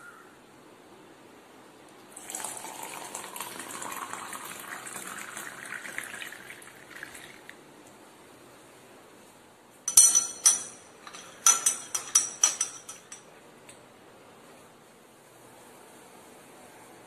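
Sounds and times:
hot water pouring into a mug: 2.1s - 7.6s.

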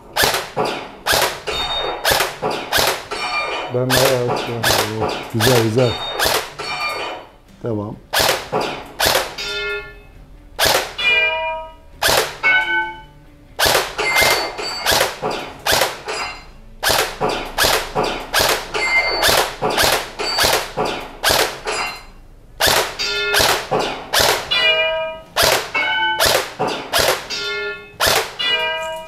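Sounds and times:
airsoft rifle shots: 0.0s - 7.3s, 8.1s - 9.5s, 10.6s - 11.3s, 12.0s - 12.7s, 13.6s - 16.1s, 16.8s - 21.7s, 22.6s - 24.7s, 25.4s - 27.4s, 28.0s - 28.6s
metallic ringing: 0.6s - 7.4s, 8.6s - 10.2s, 10.8s - 29.0s.

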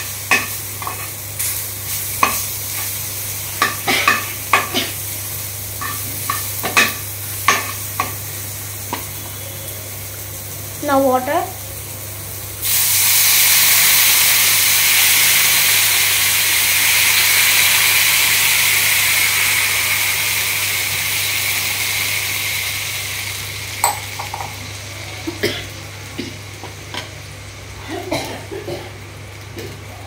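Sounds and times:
water sizzling in hot pan: 0.0s - 27.8s
utensil knocking against pan: 23.8s - 24.6s.

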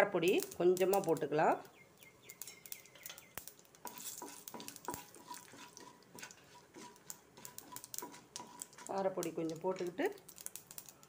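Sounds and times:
mustard seeds popping in hot oil: 0.0s - 11.0s
soft sizzle: 0.0s - 11.0s
spatula stirring: 2.3s - 11.0s.

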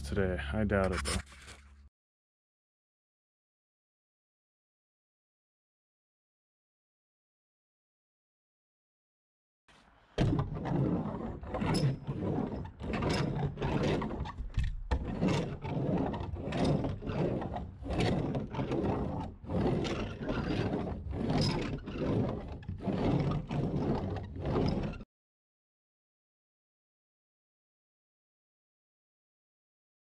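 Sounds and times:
membrane rubbed onto plywood: 15.0s - 25.0s.

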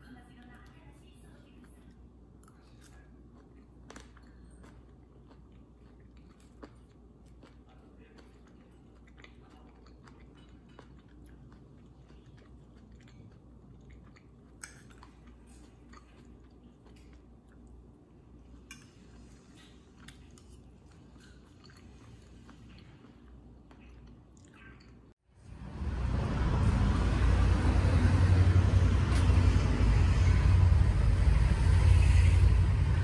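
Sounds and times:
low room hum: 0.0s - 33.0s
close-up chewing: 1.5s - 17.9s, 18.5s - 25.1s.

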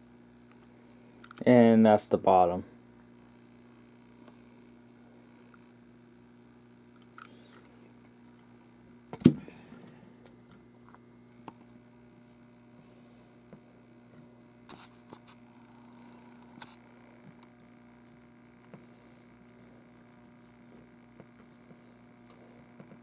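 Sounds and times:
low electrical hum: 0.0s - 23.0s.

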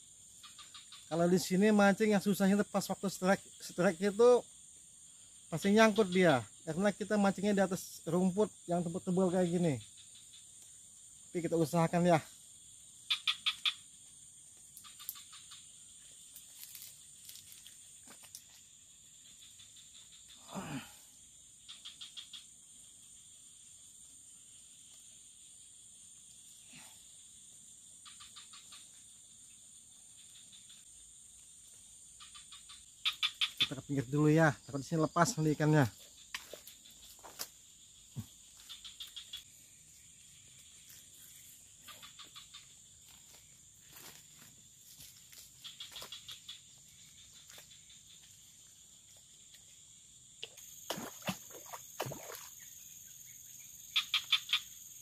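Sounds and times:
insects buzzing: 0.0s - 55.0s
footsteps through grass and brush: 16.3s - 18.6s, 43.0s - 46.2s.

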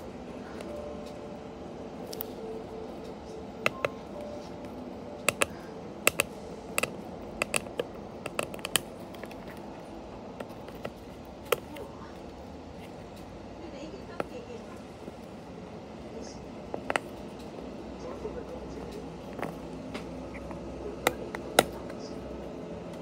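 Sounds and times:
steady background hum: 0.0s - 23.0s
fingernails tapping cardboard box: 5.2s - 9.6s.

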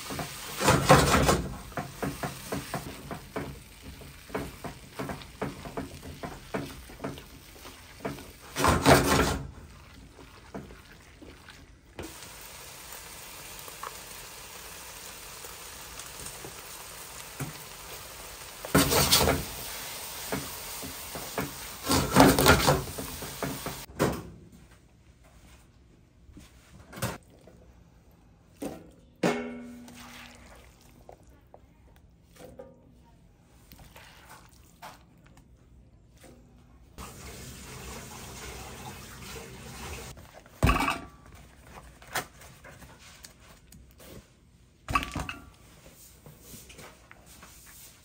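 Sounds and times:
batter sizzling on griddle: 12.0s - 23.9s.

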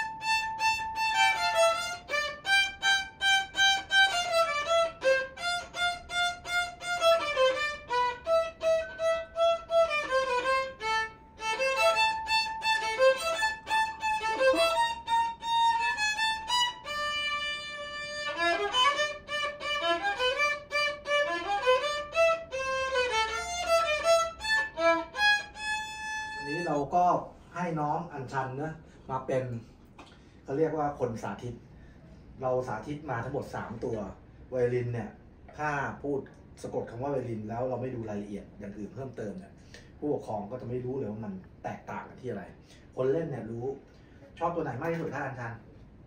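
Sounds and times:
violin melody: 0.0s - 26.9s.

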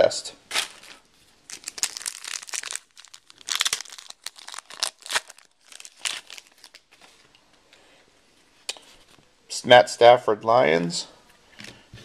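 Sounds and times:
wrapper crinkling and tearing: 0.5s - 7.1s.

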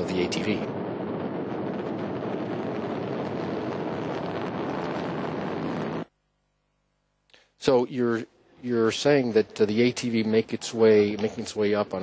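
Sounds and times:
rocket engines rumbling: 0.0s - 6.1s.

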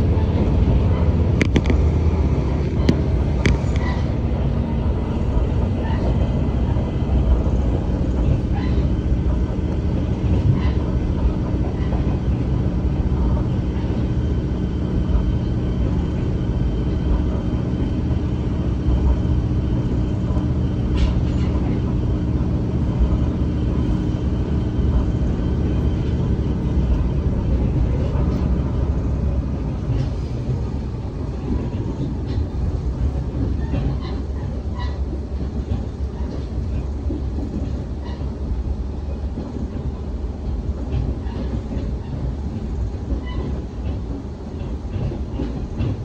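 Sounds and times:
train engine drone: 0.0s - 46.0s
wheels rumbling on rails: 0.0s - 46.0s
faint track clicks: 1.4s - 1.8s.

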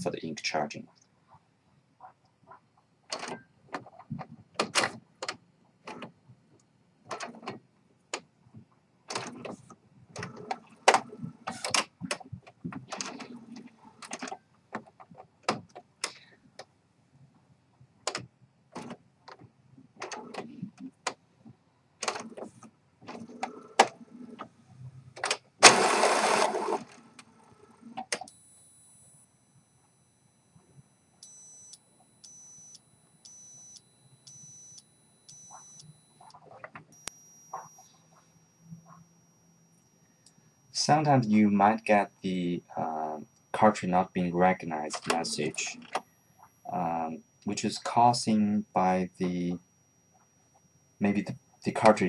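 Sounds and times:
printer mechanical clicks and clatter: 3.1s - 6.2s, 9.1s - 16.7s, 22.0s - 28.3s
printer whirring: 25.6s - 27.9s
steady high beep: 28.3s - 36.4s, 37.0s - 51.9s.

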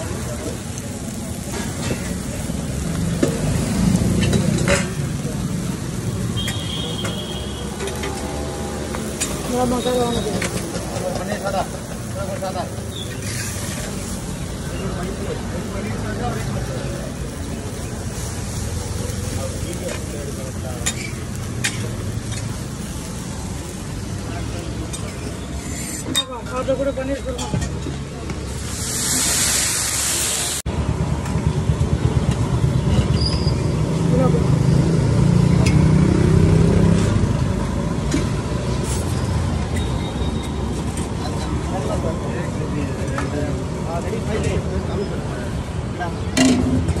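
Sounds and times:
food sizzling on griddle: 0.0s - 30.6s, 32.1s - 47.0s
spatula scraping on griddle: 12.0s - 14.7s, 17.8s - 26.2s.

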